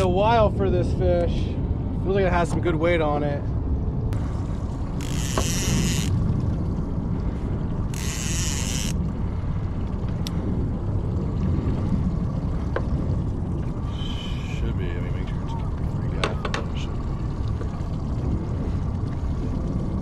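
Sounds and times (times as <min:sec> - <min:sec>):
water and wind noise: 0:00.0 - 0:20.0
outboard motor running: 0:04.2 - 0:20.0
short high buzzes: 0:05.0 - 0:06.1, 0:07.9 - 0:09.0.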